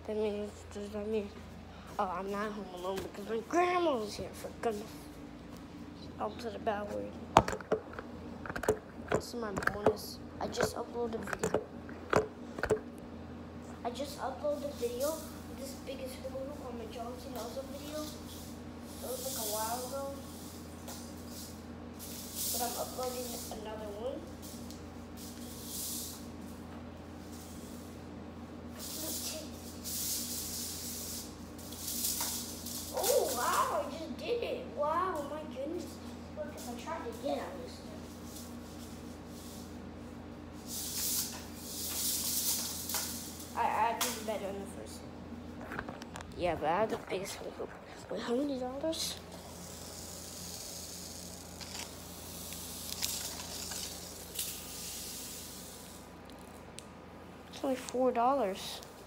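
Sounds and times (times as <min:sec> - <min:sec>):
steady low hum: 0:00.0 - 0:59.0
hula hoop swishing: 0:28.7 - 0:33.8, 0:49.5 - 0:56.1.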